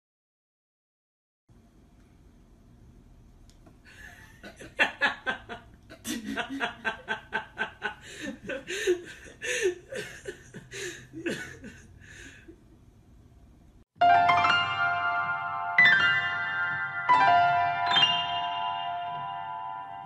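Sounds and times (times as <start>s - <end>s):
quiet breathy laughter: 3.8s - 12.8s.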